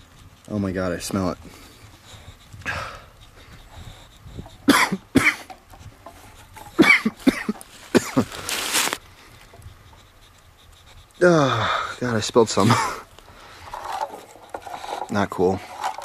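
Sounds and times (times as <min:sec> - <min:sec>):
breathy rasp: 0:00.0 - 0:16.0
man gagging and coughing: 0:04.6 - 0:05.5, 0:06.7 - 0:08.4, 0:12.6 - 0:13.0
man retching: 0:06.8 - 0:08.4.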